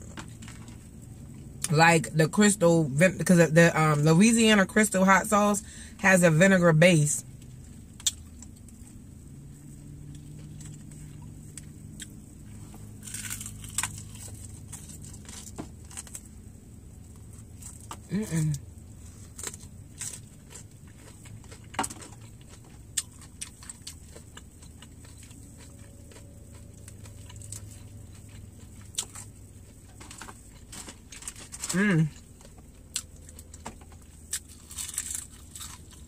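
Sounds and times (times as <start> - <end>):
crunching of crispy chicken: 7.4 - 36.0
person humming mm: 18.1 - 18.6.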